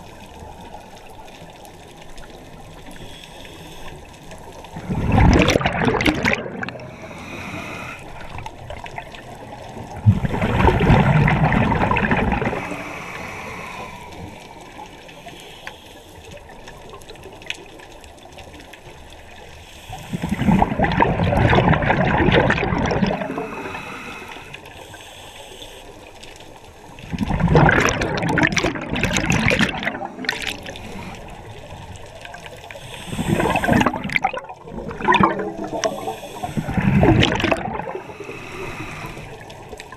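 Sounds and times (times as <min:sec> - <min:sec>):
regulator bubbling and gurgling: 0:04.5 - 0:15.0, 0:18.8 - 0:24.1, 0:26.9 - 0:39.9.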